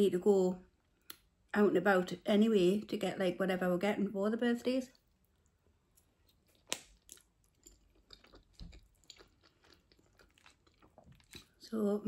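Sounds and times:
faint wet chewing: 0:05.0 - 0:11.6.

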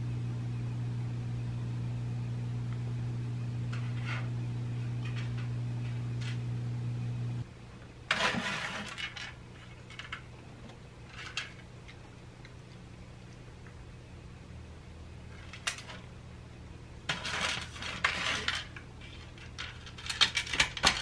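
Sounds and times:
low hum: 0:00.0 - 0:07.9.

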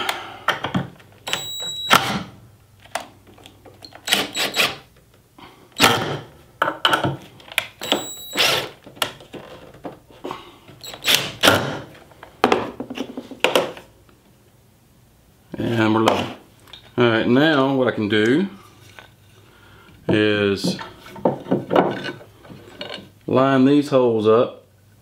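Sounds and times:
screws thunking: 0:03.9 - 0:04.8
cordless driver motor whine: 0:07.8 - 0:08.7.

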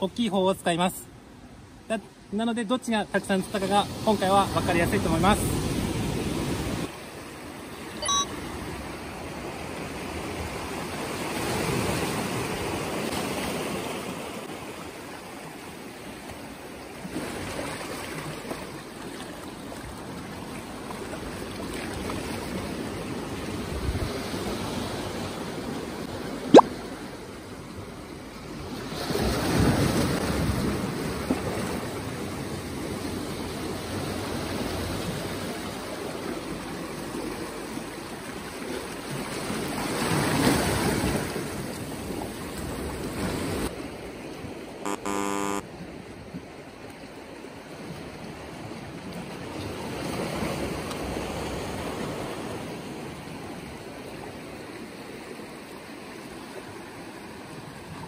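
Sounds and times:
short pitched tone: 0:08.0 - 0:08.5, 0:44.9 - 0:45.6
sea waves washing around concrete: 0:08.9 - 0:27.3, 0:28.4 - 0:44.2.

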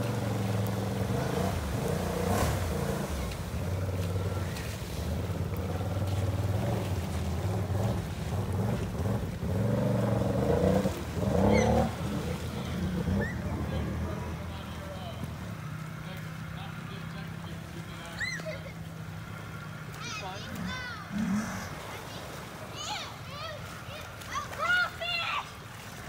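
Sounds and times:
quad engine revving: 0:00.0 - 0:15.2.

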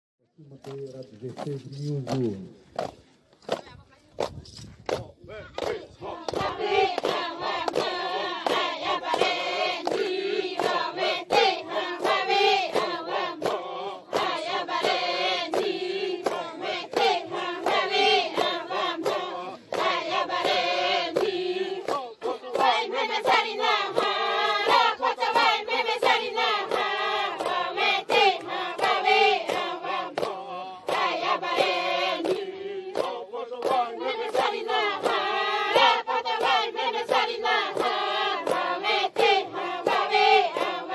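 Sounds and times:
women singing a chant: 0:05.3 - 0:40.9.

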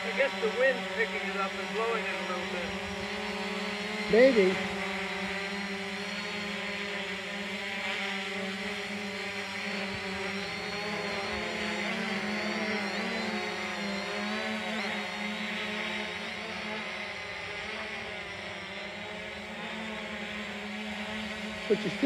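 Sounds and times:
quadcopter drone propellers whining: 0:00.0 - 0:22.0.

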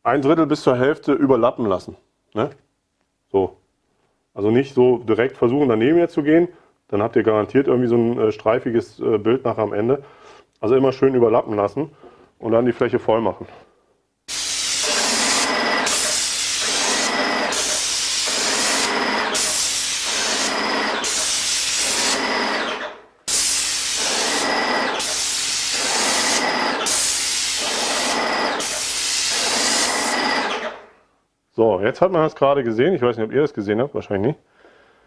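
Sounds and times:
paint sprayer hissing: 0:14.3 - 0:30.9.

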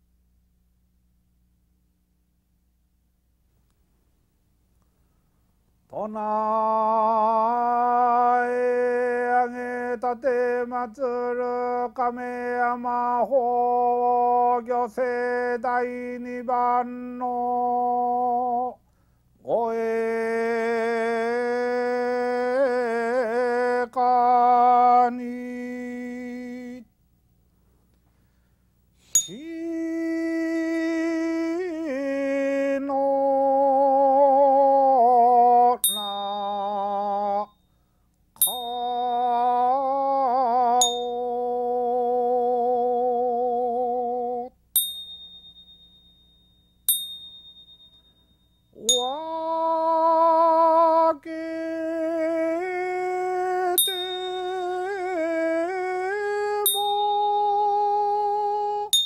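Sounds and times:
man chanting a hymn: 0:05.9 - 0:18.8, 0:19.4 - 0:26.8, 0:29.3 - 0:35.8, 0:49.1 - 0:53.8, 0:54.4 - 0:59.0
hand bell strikes: 0:29.2 - 0:29.5, 0:35.8 - 0:36.7, 0:38.4 - 0:39.3, 0:40.8 - 0:41.2, 0:44.8 - 0:49.3, 0:53.8 - 0:54.8, 0:56.7 - 0:57.4.

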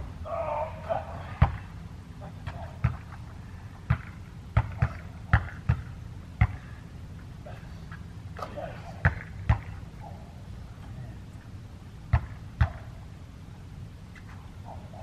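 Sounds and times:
faint distant voices: 0:00.0 - 0:15.0
basketball bouncing on court: 0:01.4 - 0:01.7, 0:02.4 - 0:03.2, 0:03.8 - 0:06.7, 0:09.0 - 0:09.8, 0:12.1 - 0:13.0.

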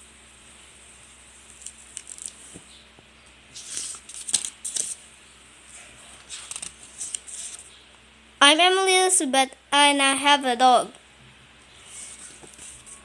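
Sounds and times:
light paper clicks: 0:01.5 - 0:02.7, 0:03.6 - 0:05.0, 0:06.2 - 0:07.7
paper pages rustling: 0:01.5 - 0:02.7, 0:03.5 - 0:05.0, 0:05.8 - 0:07.7, 0:11.8 - 0:13.0.

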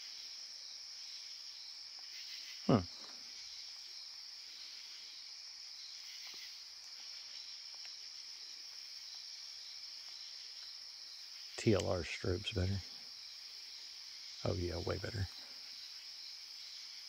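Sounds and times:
crickets chirping: 0:00.0 - 0:17.0
faint clicks: 0:11.6 - 0:12.0.

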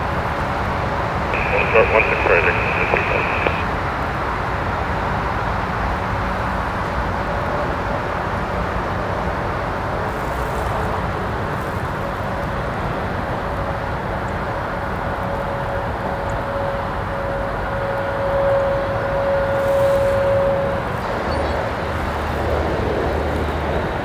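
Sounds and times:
jet engines roaring: 0:01.3 - 0:03.8
faint even whine: 0:01.4 - 0:03.7.

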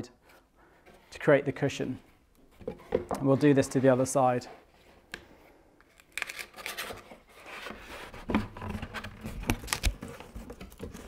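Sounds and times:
cardboard rustling and clicking: 0:06.6 - 0:11.0.

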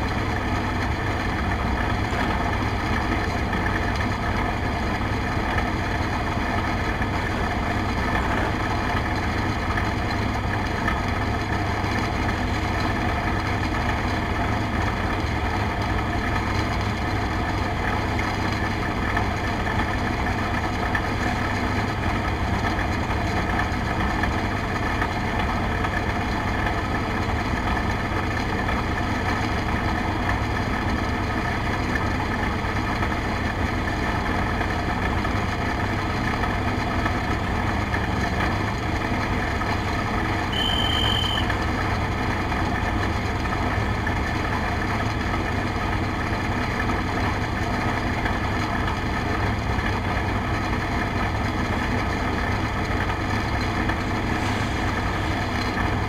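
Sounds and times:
race car engine idling: 0:00.0 - 0:56.0
short high beep: 0:40.5 - 0:41.5.

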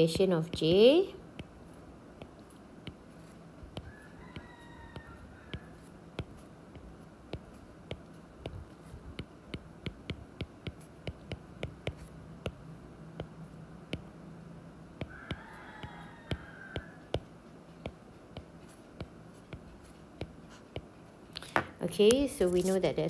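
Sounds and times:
low steady hum: 0:00.0 - 0:15.4
stylus tapping on glass screen: 0:02.2 - 0:12.6, 0:13.2 - 0:14.1, 0:15.0 - 0:22.2.

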